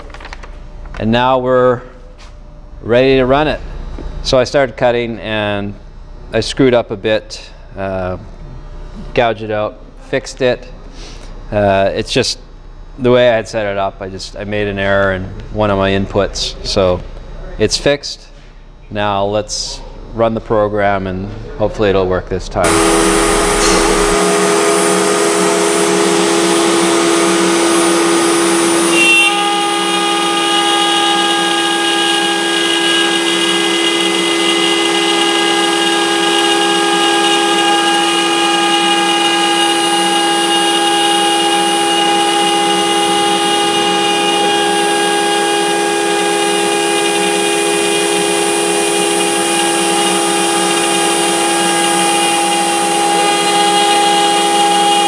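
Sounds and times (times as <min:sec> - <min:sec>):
router spindle high whine: 0:21.8 - 0:55.0.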